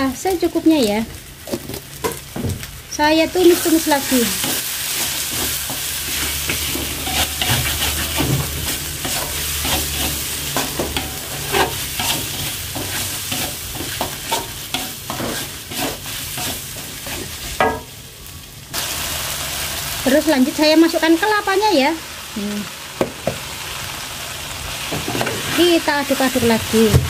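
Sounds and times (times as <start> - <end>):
steady sizzle: 0.0 - 27.0
metal spatula scraping a wok: 3.4 - 17.8.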